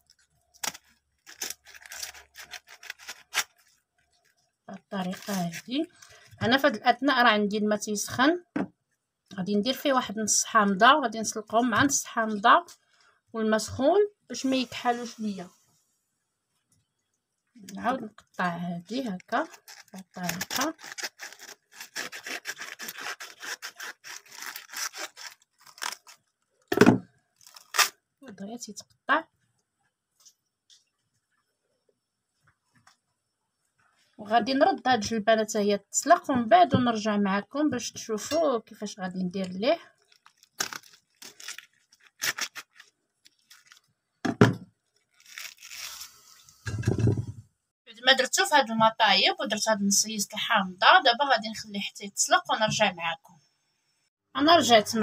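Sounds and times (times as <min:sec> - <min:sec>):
knife sawing through artichoke: 0:19.5 - 0:26.2.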